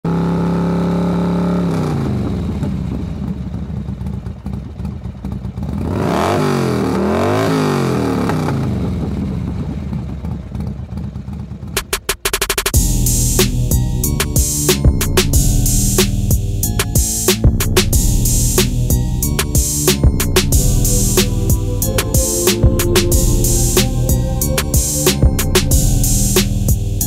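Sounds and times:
motorcycle engine revving: 0:00.1 - 0:11.8
sharp clicks: 0:11.8 - 0:12.8.

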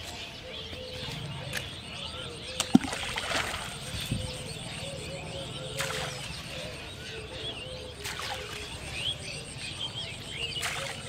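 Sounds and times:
birds chirping: 0:00.0 - 0:11.0
bait plopping into water: 0:02.6 - 0:03.7.

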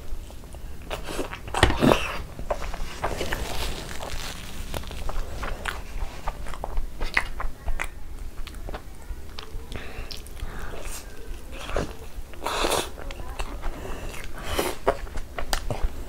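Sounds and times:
wet chewing mouth clicks: 0:05.0 - 0:15.9.

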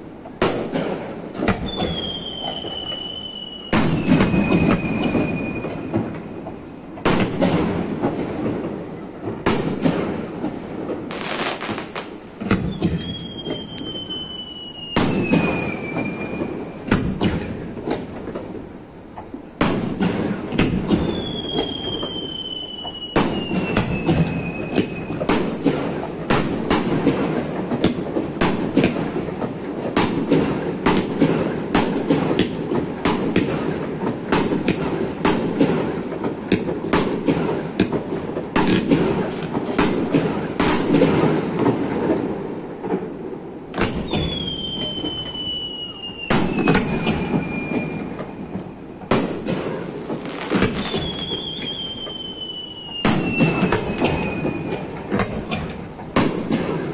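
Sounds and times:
fireworks bursting and crackling: 0:00.0 - 0:56.9
falling firework whistle: 0:00.7 - 0:10.0, 0:11.1 - 0:18.0, 0:19.6 - 0:27.1, 0:43.7 - 0:56.9.

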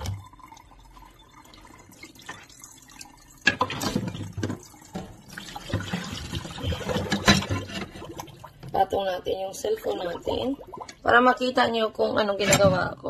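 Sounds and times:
water dripping in metal sink: 0:08.0 - 0:12.4.

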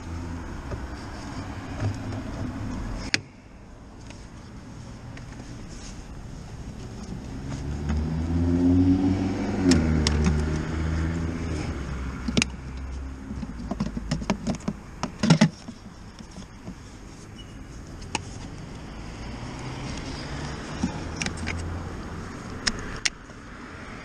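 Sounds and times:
car driving past: 0:07.4 - 0:12.2
cables and plugs handled: 0:09.7 - 0:10.7, 0:11.5 - 0:18.9, 0:19.9 - 0:23.4.

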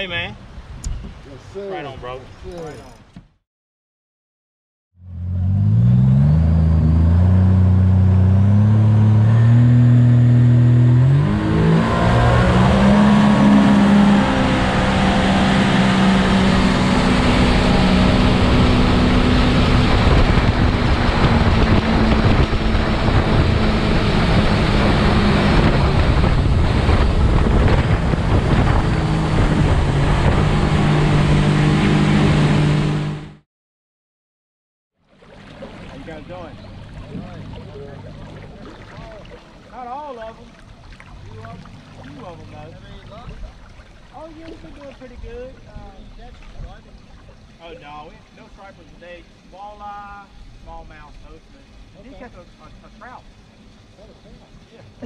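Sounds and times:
rush of wind and water: 0:00.0 - 0:02.9, 0:10.4 - 0:33.2, 0:35.1 - 0:49.5
outboard boat engine: 0:00.0 - 0:03.4, 0:05.0 - 0:33.4, 0:35.0 - 0:55.0.

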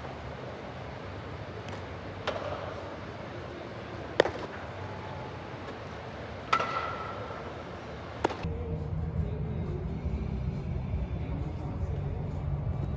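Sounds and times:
baseballs being hit: 0:01.2 - 0:08.5.

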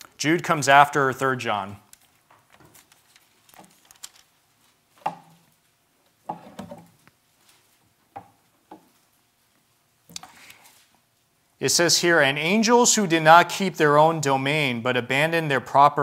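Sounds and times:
pages turning: 0:01.9 - 0:04.8.

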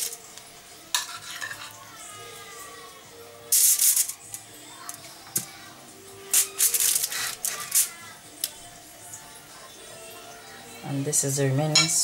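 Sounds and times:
aluminium foil crinkling: 0:00.0 - 0:00.3, 0:03.5 - 0:05.0, 0:06.3 - 0:08.6
spoon scraping in a bowl: 0:00.9 - 0:01.8.

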